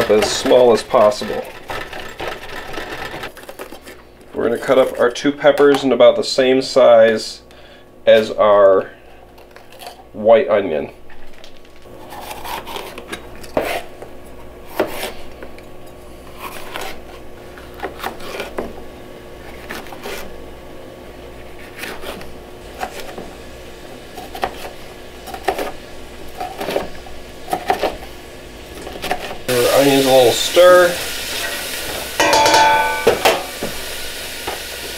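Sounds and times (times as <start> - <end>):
knife scraping board: 0.0 - 4.0, 12.0 - 14.0, 14.6 - 15.4, 16.2 - 18.7, 19.4 - 20.4, 21.4 - 23.2, 24.1 - 25.8.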